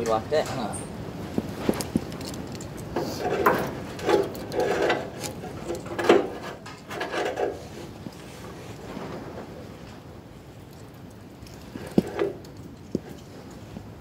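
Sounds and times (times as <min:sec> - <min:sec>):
metal clinks knocks and scrapes: 0:01.3 - 0:08.3, 0:10.8 - 0:13.8.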